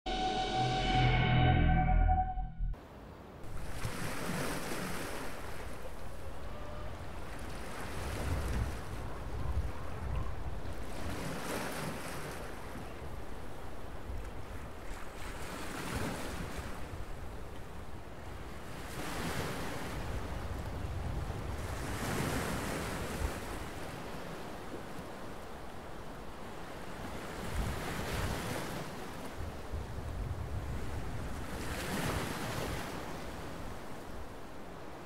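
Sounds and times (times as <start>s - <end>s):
wind rumbling on microphone: 6.2s - 11.2s, 19.9s - 23.8s, 29.4s - 31.8s.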